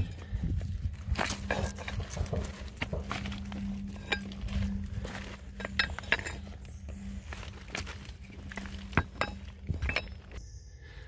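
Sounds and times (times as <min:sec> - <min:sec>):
stones grating against metal: 0:00.0 - 0:10.4
steady low hum: 0:00.0 - 0:11.0.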